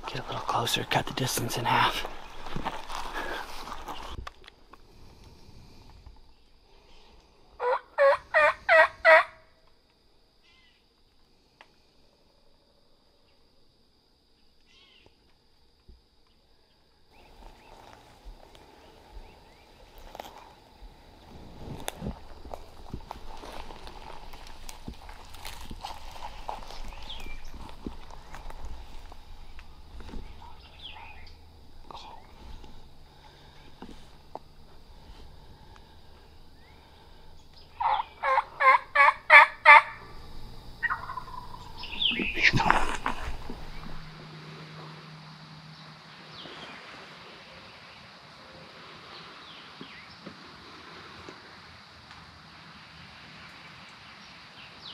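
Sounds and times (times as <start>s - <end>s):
footsteps crunching through dry fronds: 0.0s - 4.2s, 17.2s - 37.7s, 40.2s - 44.2s
turkey calling: 7.6s - 9.4s, 37.3s - 44.1s.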